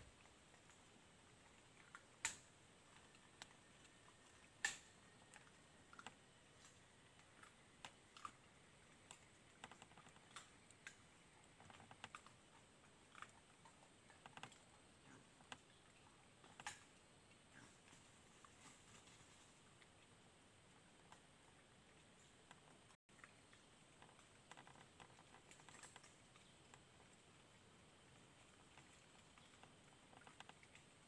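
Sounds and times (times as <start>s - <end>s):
twigs snapping: 4.6s - 4.9s.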